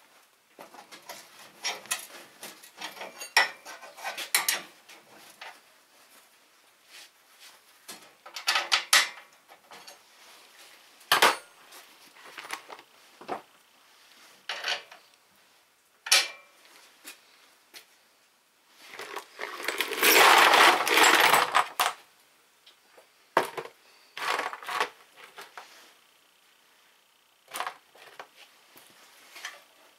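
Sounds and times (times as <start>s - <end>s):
tools and steel parts clinking: 1.6s - 4.7s, 8.2s - 10.0s, 14.5s - 15.0s, 16.1s - 16.5s, 19.0s - 22.0s.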